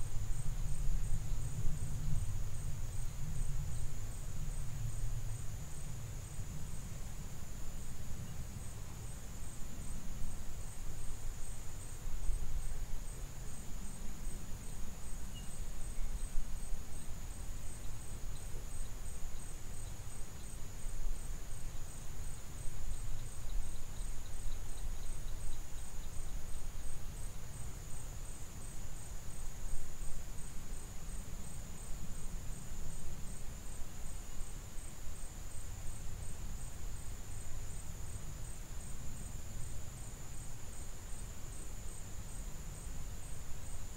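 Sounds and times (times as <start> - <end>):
high-pitched insect trill: 13.5 - 43.9.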